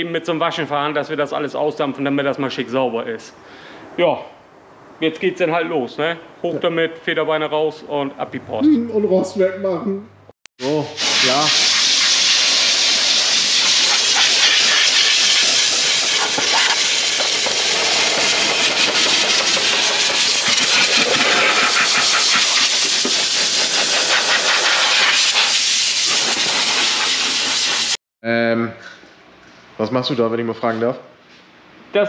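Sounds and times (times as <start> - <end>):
air blow gun hissing: 10.6 - 28.0.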